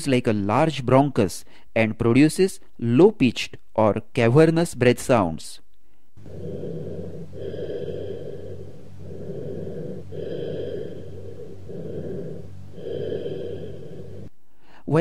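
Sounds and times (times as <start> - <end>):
breath sounds through stethoscope: 5.8 - 14.8.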